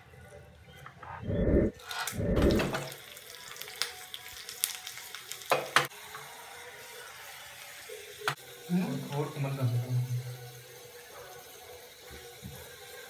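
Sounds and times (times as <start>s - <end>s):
heavy low rumbling thumps: 1.1s - 2.7s
seeds sizzling in hot oil: 2.7s - 13.0s.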